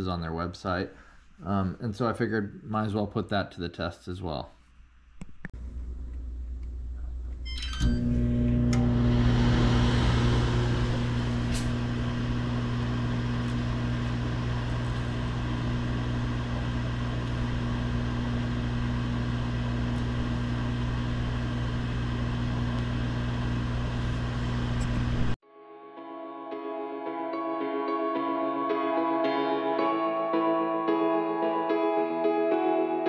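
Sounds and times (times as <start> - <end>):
cooling fan whirring: 5.6 - 25.4
microwave oven humming: 5.6 - 25.4.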